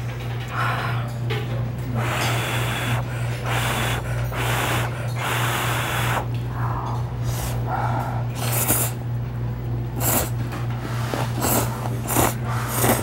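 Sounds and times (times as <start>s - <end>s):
steady low hum: 0.0s - 13.0s
noodles being slurped: 8.4s - 9.0s, 9.9s - 10.4s, 11.0s - 13.0s.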